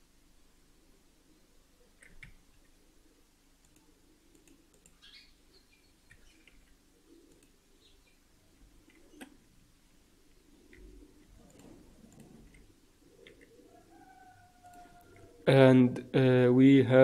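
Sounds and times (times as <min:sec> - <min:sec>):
faint computer mouse clicks: 0:03.6 - 0:05.1, 0:06.1 - 0:07.6, 0:08.8 - 0:09.4, 0:10.7 - 0:13.6.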